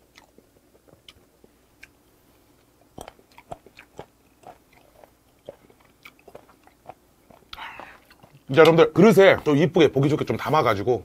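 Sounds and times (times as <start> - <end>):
wet chewing clicks: 0.0 - 2.0, 2.6 - 8.8.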